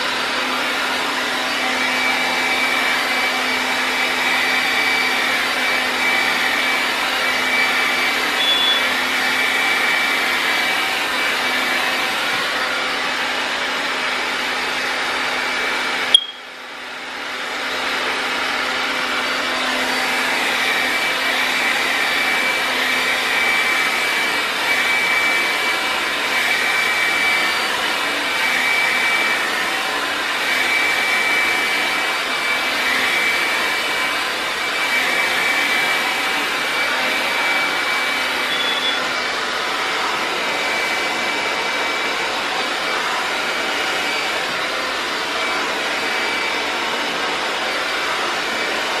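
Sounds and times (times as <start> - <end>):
hair dryer blowing: 0.0 - 49.0
sharp click: 16.1 - 16.4.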